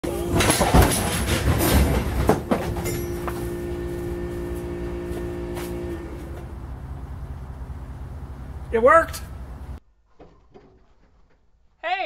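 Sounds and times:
struck metal ringing: 0:00.6 - 0:03.7.

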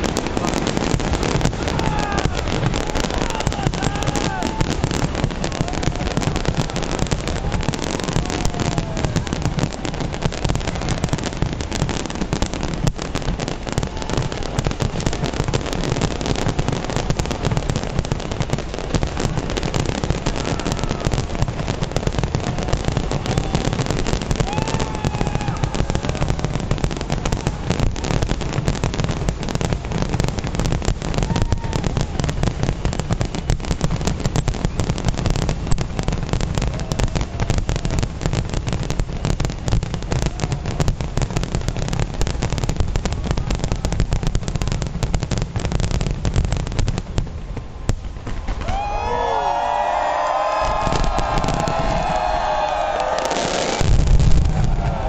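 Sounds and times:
fireworks banging and crackling: 0:00.0 - 0:55.0.

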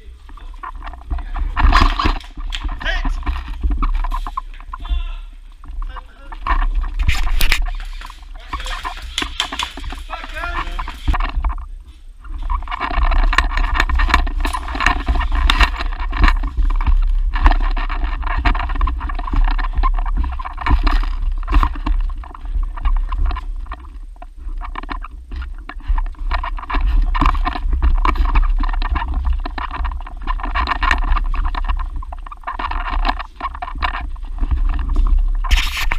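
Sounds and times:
footsteps crunching on debris: 0:00.0 - 0:35.9
gear clicking and rustling: 0:00.0 - 0:35.9.

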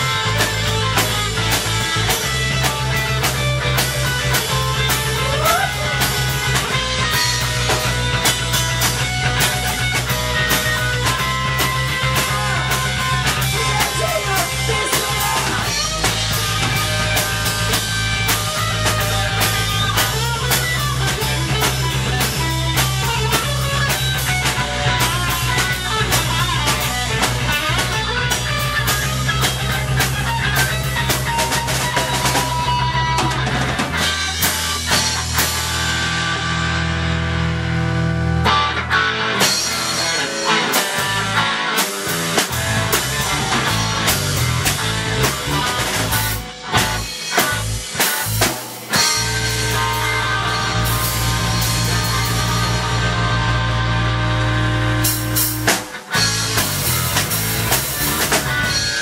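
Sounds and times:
steady drum beat: 0:00.0 - 0:37.4, 0:39.4 - 0:59.0
instrumental rock music: 0:00.0 - 0:59.0.

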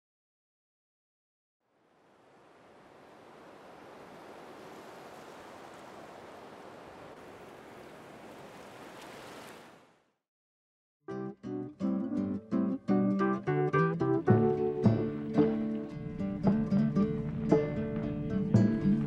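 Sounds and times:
gentle sea surf: 0:01.7 - 0:10.1.

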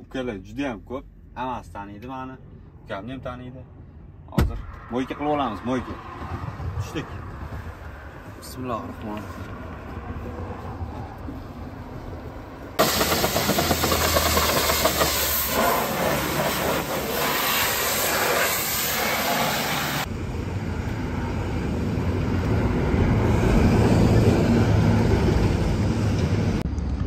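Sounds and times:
pressure washer spraying water: 0:12.8 - 0:20.1.

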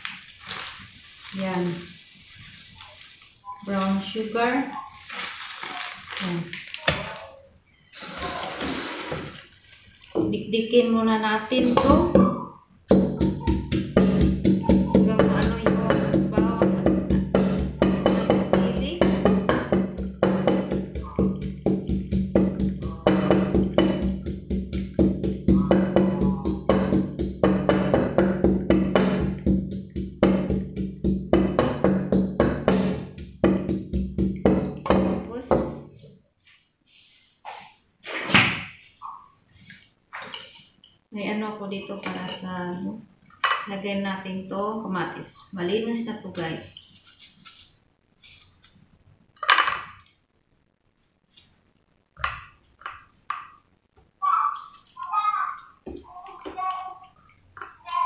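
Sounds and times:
wooden pestle pounding in mortar: 0:11.8 - 0:35.8.

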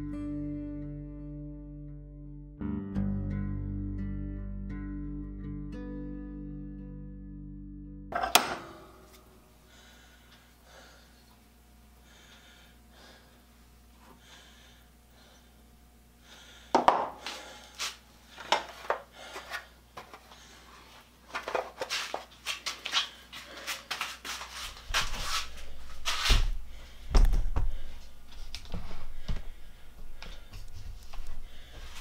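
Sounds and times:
hacksaw cutting steel: 0:08.2 - 0:09.2.

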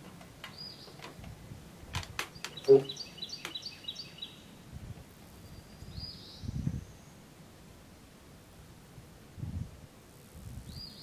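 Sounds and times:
songbird chirping: 0:00.0 - 0:01.3, 0:02.1 - 0:04.6, 0:05.3 - 0:07.3.

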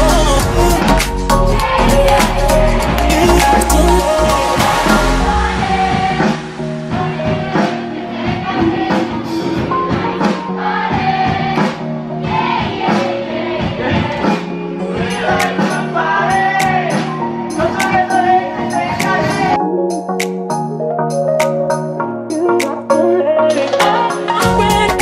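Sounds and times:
live band with singer: 0:00.0 - 0:10.5, 0:22.3 - 0:25.0.

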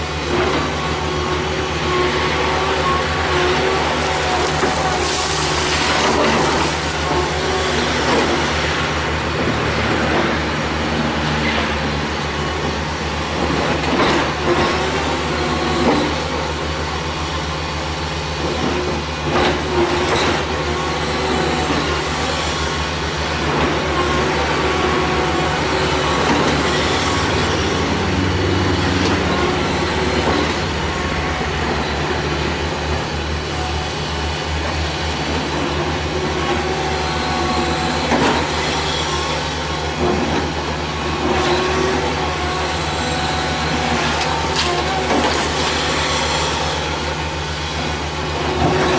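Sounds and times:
diesel engine drone: 0:00.0 - 0:48.9.

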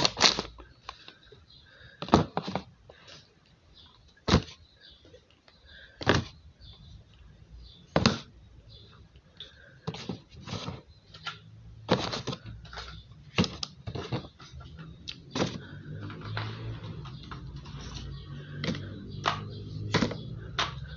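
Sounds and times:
packets tapping into plastic bin: 0:02.0 - 0:02.7, 0:04.2 - 0:04.6, 0:06.0 - 0:06.4, 0:09.8 - 0:20.9.

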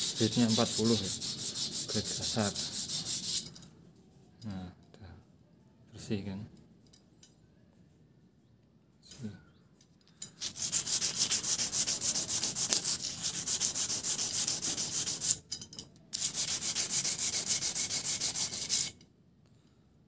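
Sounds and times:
sandpaper rubbing on steel rod: 0:00.0 - 0:03.5, 0:10.4 - 0:15.4, 0:16.2 - 0:19.0.

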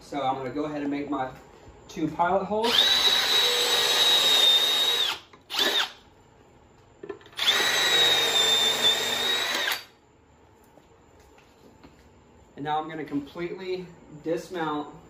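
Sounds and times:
cordless drill whining: 0:02.6 - 0:06.0, 0:07.4 - 0:09.9.

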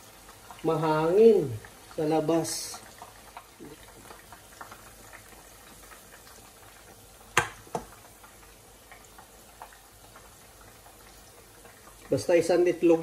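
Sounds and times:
meatballs sizzling in oil: 0:00.0 - 0:13.0
small popping of oil: 0:02.7 - 0:12.1.

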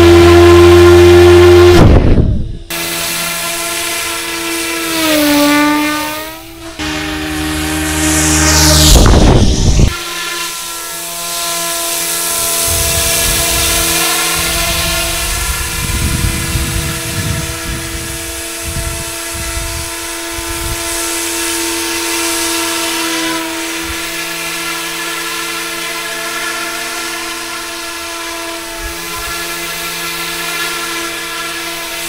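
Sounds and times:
model helicopter rotors whining: 0:00.0 - 0:32.0
low gusty rumbling: 0:01.4 - 0:02.7, 0:06.3 - 0:09.9, 0:12.3 - 0:21.1.

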